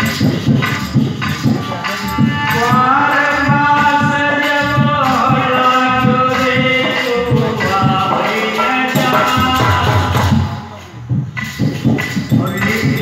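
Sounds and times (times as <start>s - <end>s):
steady drum beat: 0.0s - 13.0s
devotional song singing: 0.8s - 11.1s.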